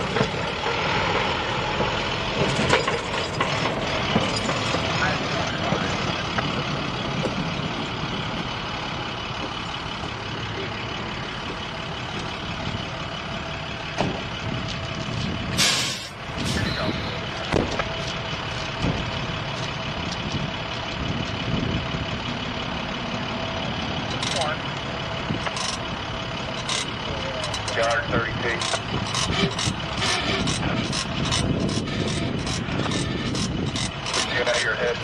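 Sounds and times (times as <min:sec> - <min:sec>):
diesel engine idling: 0:00.0 - 0:35.0
steady whine: 0:02.4 - 0:19.0
loud hiss: 0:15.6 - 0:16.7.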